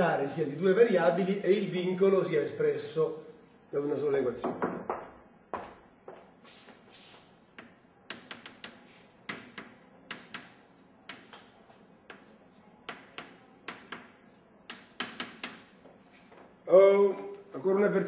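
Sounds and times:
chalk tapping on blackboard: 0:04.8 - 0:16.4.

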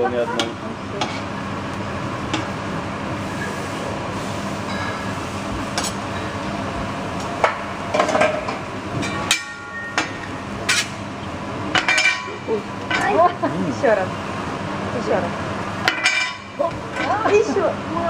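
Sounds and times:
knife and fork clinking on griddle: 0:11.8 - 0:13.2, 0:15.9 - 0:17.2.

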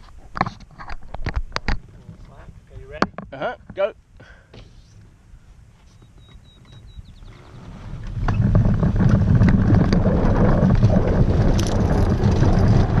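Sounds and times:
rigging clicks and rattles: 0:00.0 - 0:03.8, 0:06.7 - 0:13.0
wind rumbling on microphone: 0:00.0 - 0:03.8, 0:04.6 - 0:13.0.

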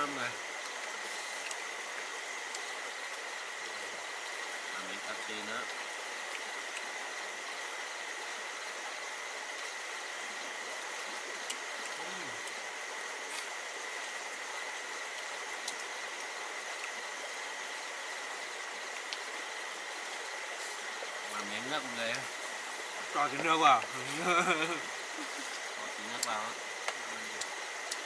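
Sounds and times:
stream rushing: 0:00.0 - 0:28.0
faint ticks: 0:01.4 - 0:01.6, 0:15.2 - 0:17.0, 0:25.5 - 0:28.0.

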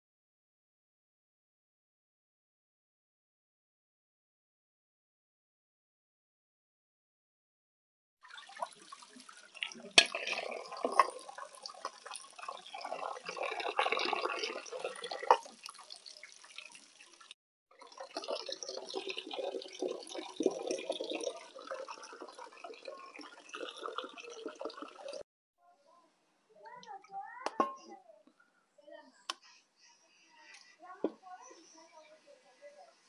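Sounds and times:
tap water running and splashing: 0:08.2 - 0:25.2.

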